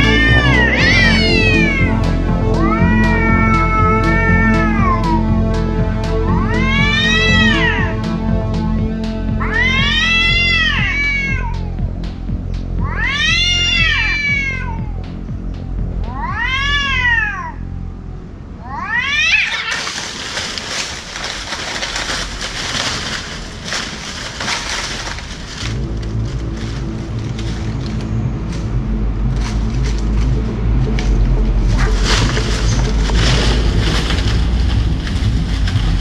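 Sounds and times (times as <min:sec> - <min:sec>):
cats yowling: 0:00.0 - 0:05.3, 0:06.4 - 0:07.9, 0:09.4 - 0:11.9, 0:12.8 - 0:15.2, 0:16.0 - 0:17.7, 0:18.6 - 0:25.6
cats scuffling in dry fronds: 0:00.0 - 0:17.2, 0:18.9 - 0:36.0
background music: 0:00.0 - 0:18.6, 0:19.9 - 0:36.0.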